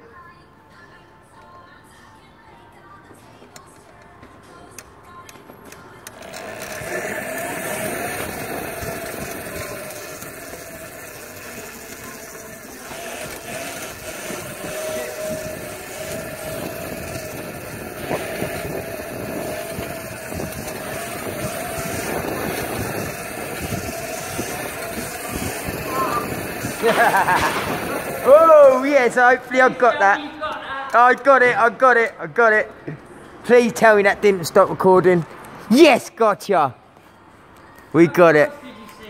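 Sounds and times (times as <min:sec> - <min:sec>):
small hard wheels rolling on paving: 0:03.8 - 0:32.1
steady whine: 0:06.0 - 0:29.8
wind noise on microphone: 0:06.2 - 0:28.8.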